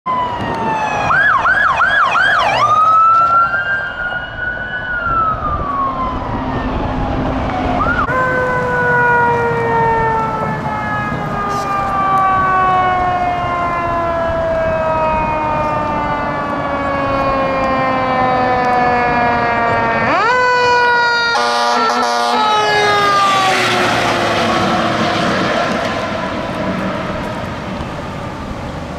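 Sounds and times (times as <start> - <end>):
fire vehicle siren: 0.1 - 28.9
fire engine horn blasts: 8.1 - 13.3, 14.0 - 26.4.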